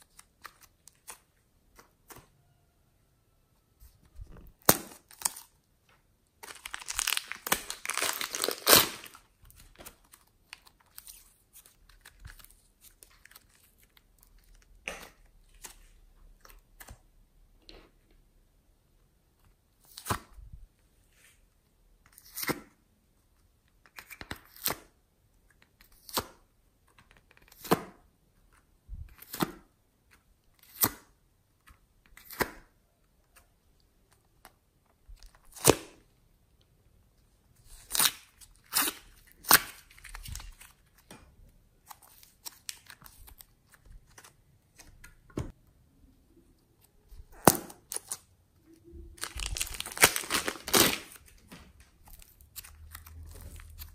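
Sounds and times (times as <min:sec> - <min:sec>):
plastic bag crinkling: 0:06.4 - 0:09.3, 0:49.1 - 0:51.5.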